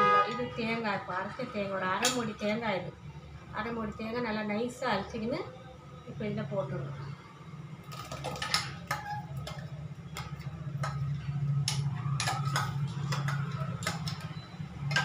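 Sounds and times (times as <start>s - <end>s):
metal spoon clinking on steel pots: 7.9s - 15.0s.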